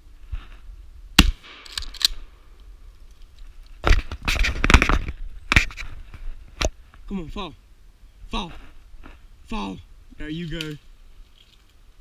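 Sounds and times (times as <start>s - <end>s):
shotgun shot: 1.2s - 1.7s
crackling and rustling: 1.5s - 7.1s, 10.4s - 11.9s.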